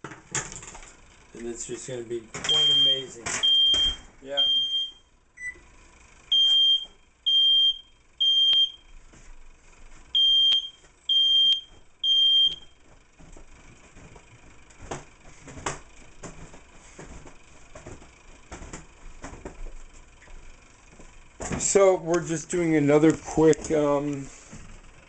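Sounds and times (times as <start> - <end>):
smoke alarm beeping: 2.4 - 5.7, 6.3 - 9.0, 10.1 - 12.8.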